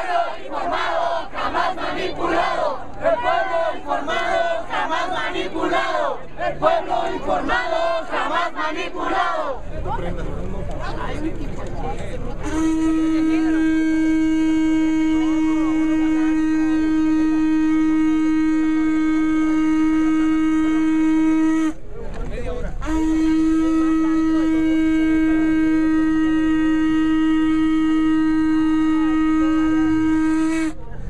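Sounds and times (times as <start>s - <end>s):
crowd voices: 0.0s - 19.2s, 21.4s - 31.0s
horn long note: 12.4s - 21.8s, 22.8s - 30.8s.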